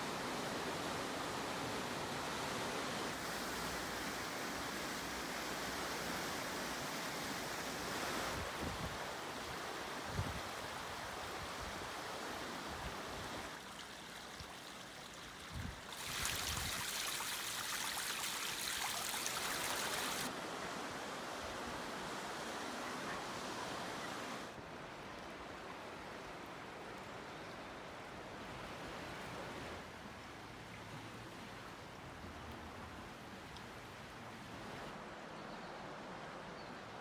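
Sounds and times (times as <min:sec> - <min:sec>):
river rushing: 0:00.0 - 0:26.8.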